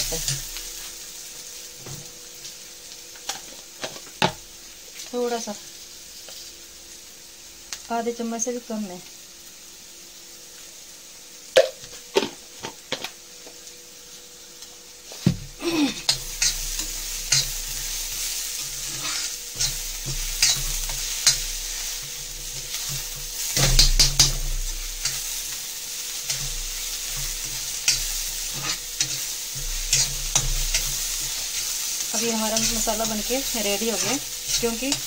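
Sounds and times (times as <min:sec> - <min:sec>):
food sizzling: 0:00.0 - 0:35.0
spoon scraping a pan: 0:16.1 - 0:25.6, 0:26.2 - 0:35.0.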